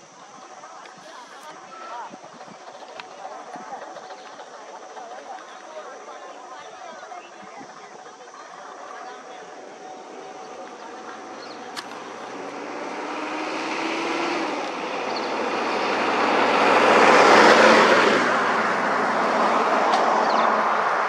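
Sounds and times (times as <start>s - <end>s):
vehicle passing close by: 8.6s - 21.0s.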